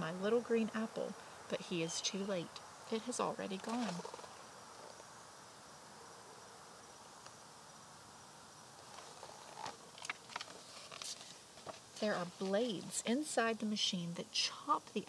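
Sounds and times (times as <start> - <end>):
insects buzzing: 0.0 - 15.0
book pages rustling and tapping: 3.6 - 5.0, 8.8 - 12.7.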